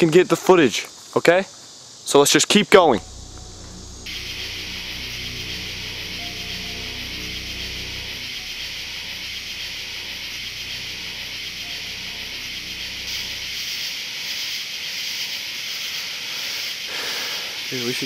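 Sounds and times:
high hiss: 0:02.2 - 0:18.0
low drone: 0:02.8 - 0:14.4.

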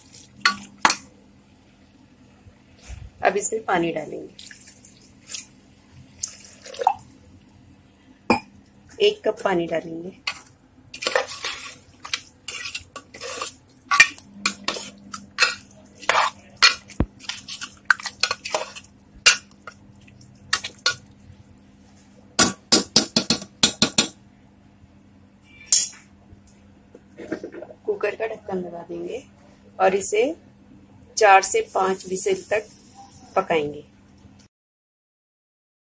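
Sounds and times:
spoon scraping and clinking pot: 0:11.0 - 0:19.5.

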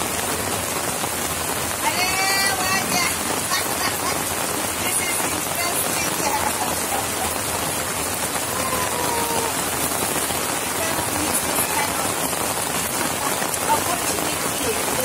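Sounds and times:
rain on a tarp: 0:00.0 - 0:15.0.

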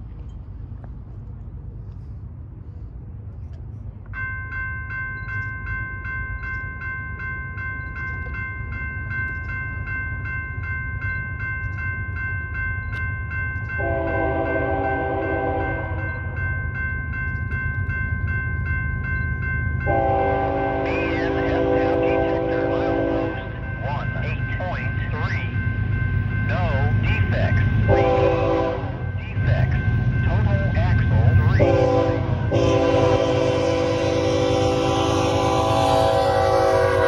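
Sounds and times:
crossing bell ringing: 0:03.8 - 0:37.0
locomotive horn blast: 0:13.8 - 0:16.1, 0:19.9 - 0:23.6, 0:27.9 - 0:29.1, 0:31.6 - 0:37.0.

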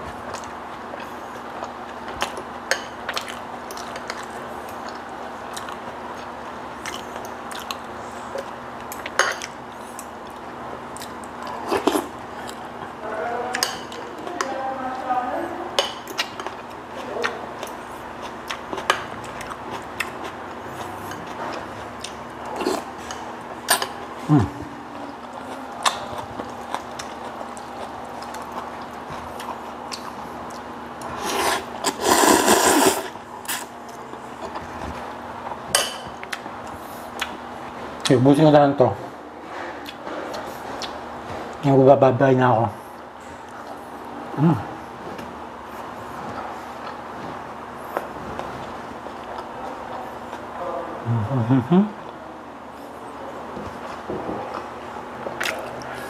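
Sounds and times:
slurping noodles: 0:31.1 - 0:33.7.

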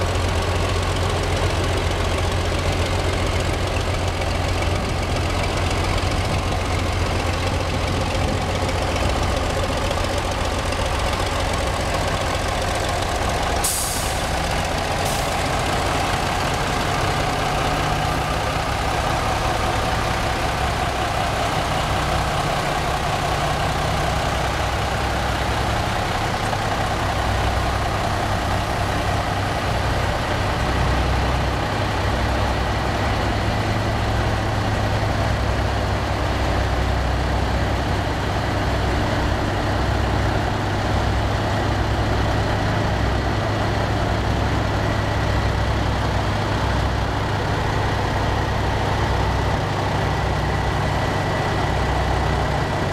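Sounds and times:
crane engine running: 0:00.0 - 0:52.9
compressed air hiss: 0:13.6 - 0:14.3, 0:15.0 - 0:15.4.

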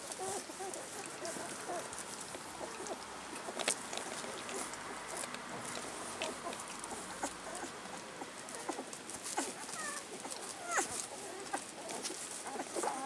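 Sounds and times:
puppies squeaking: 0:02.6 - 0:13.0.

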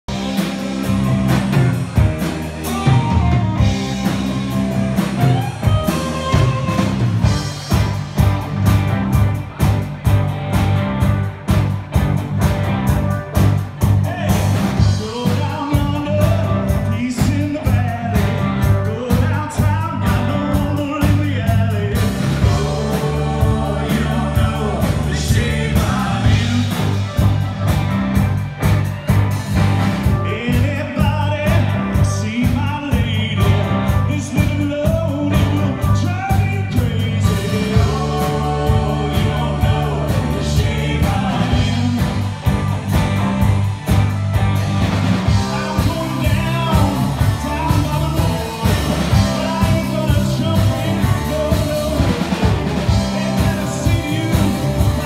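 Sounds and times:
drum kit rock beat: 0:00.0 - 0:55.0
electric guitars: 0:00.1 - 0:55.0
man singing lead vocal: 0:14.0 - 0:27.4, 0:30.0 - 0:42.8, 0:45.3 - 0:55.0.

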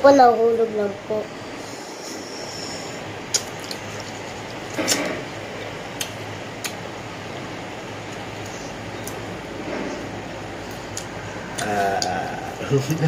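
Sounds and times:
background hiss: 0:00.0 - 0:06.9.

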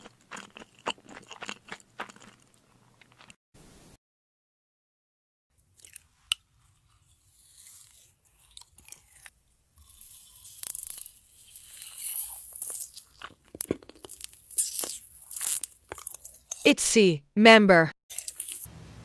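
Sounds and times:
chewing: 0:00.0 - 0:03.4, 0:05.8 - 0:16.7, 0:18.1 - 0:18.7
person slurping noodles: 0:07.0 - 0:16.7, 0:18.1 - 0:18.7.

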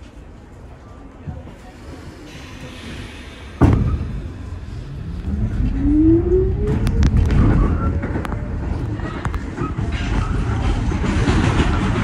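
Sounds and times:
train wheel and rail rush: 0:00.0 - 0:12.0
wheels clicking over rail joints: 0:06.7 - 0:12.0.

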